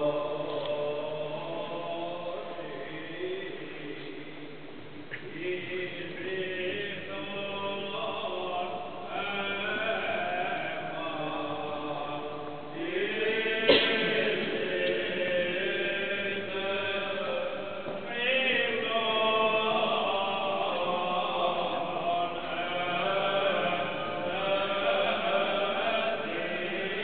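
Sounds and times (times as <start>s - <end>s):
voices singing liturgical chant: 0.0s - 4.4s, 5.1s - 27.0s.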